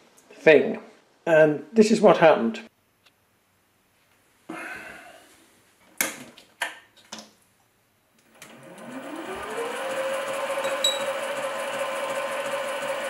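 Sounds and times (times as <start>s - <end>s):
lathe motor whine: 8.4s - 13.0s.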